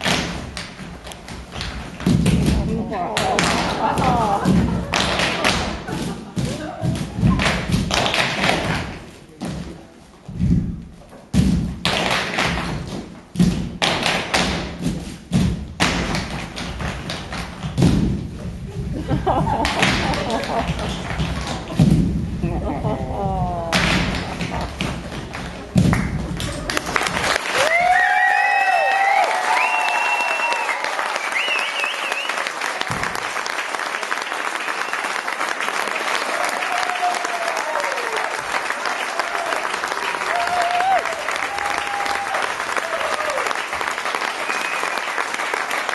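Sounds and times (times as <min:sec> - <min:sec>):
feet stamping on stage floor: 0:00.0 - 0:28.3, 0:32.8 - 0:33.3
audience applauding: 0:19.5 - 0:21.8, 0:23.1 - 0:45.9
whoops and cheers: 0:27.5 - 0:32.4, 0:36.2 - 0:38.4, 0:39.0 - 0:43.6.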